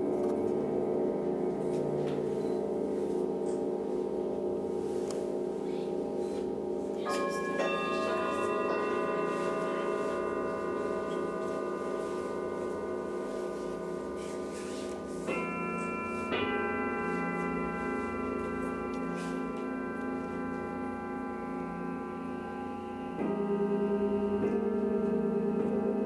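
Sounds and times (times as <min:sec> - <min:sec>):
singing bowls ringing: 0:00.0 - 0:26.0
singing bowls struck with mallet: 0:07.0 - 0:25.8.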